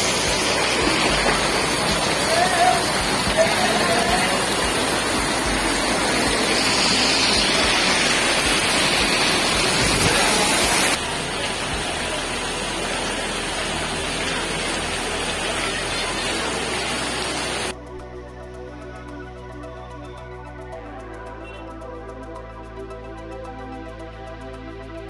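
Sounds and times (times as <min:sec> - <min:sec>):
heavy rain on standing water: 0:00.0 - 0:17.8.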